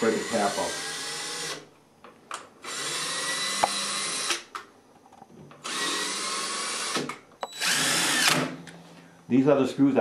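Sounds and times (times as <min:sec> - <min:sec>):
cordless drill whining: 0:00.0 - 0:01.6, 0:02.6 - 0:04.4, 0:05.6 - 0:08.5.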